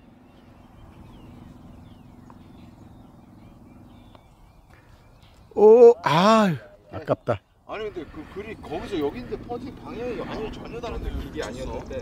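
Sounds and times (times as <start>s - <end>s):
distant motor hum: 0.0s - 5.6s, 7.7s - 12.0s
faint bird chirps: 0.0s - 6.0s.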